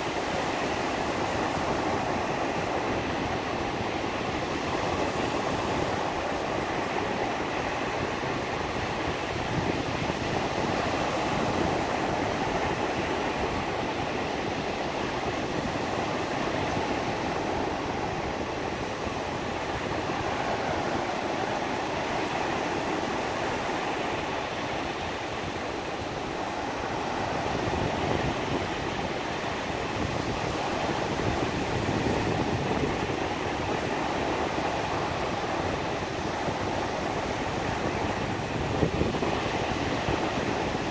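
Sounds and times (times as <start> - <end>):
surf washing up beach: 0.0 - 40.9.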